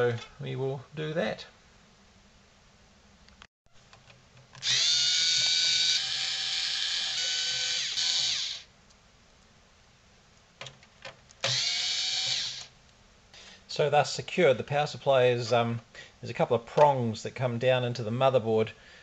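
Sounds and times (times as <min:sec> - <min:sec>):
electric screwdriver whine: 0:04.6 - 0:08.7, 0:11.4 - 0:12.7.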